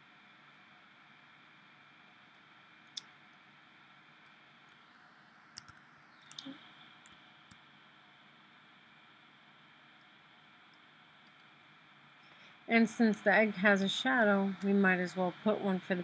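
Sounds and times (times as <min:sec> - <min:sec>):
faint background hiss: 0:00.0 - 0:16.0
computer mouse clicks: 0:05.5 - 0:07.6.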